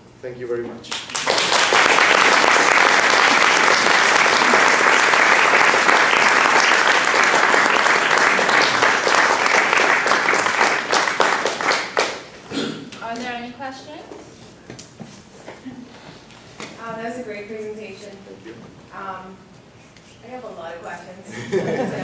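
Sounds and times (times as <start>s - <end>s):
audience applauding: 0.9s - 12.4s.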